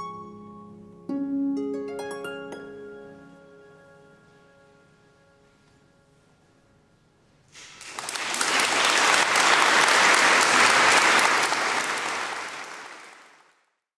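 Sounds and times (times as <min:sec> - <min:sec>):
audience applauding: 0:07.5 - 0:13.7.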